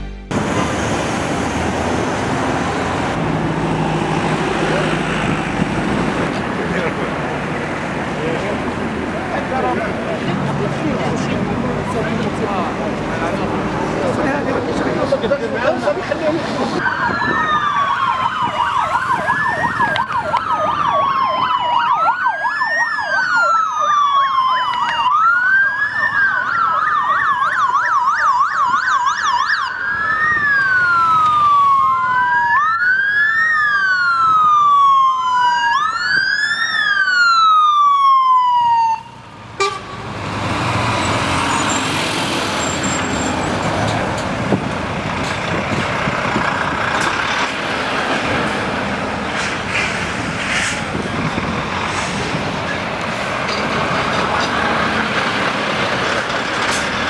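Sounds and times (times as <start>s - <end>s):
heavy lorries passing: 0.1s - 57.0s
police sirens wailing and yelping: 1.6s - 39.8s.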